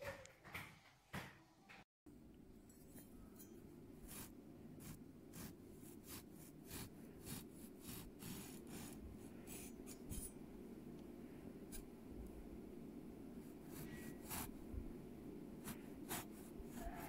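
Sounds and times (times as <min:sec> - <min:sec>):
bread knife sawing through cake: 0:04.1 - 0:10.3, 0:13.5 - 0:14.5, 0:15.7 - 0:17.0.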